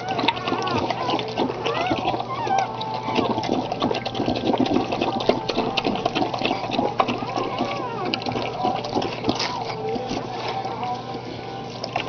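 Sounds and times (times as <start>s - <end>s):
puppy squeaks: 0.0s - 3.4s, 7.2s - 8.2s.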